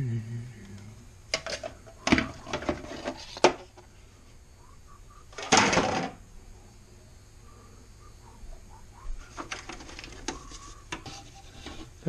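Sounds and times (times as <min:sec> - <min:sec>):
plastic parts clicking and knocking: 0:01.3 - 0:03.9, 0:05.3 - 0:06.2, 0:09.3 - 0:11.9.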